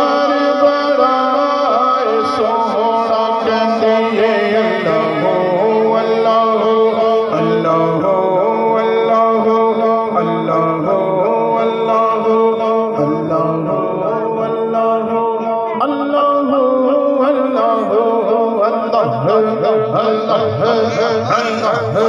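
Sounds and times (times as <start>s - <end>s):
man singing into a microphone: 0.0s - 22.0s.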